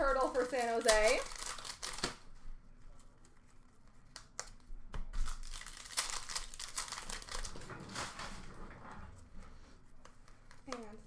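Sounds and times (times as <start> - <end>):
pack wrappers crinkling: 0.0 - 2.2, 4.0 - 8.3.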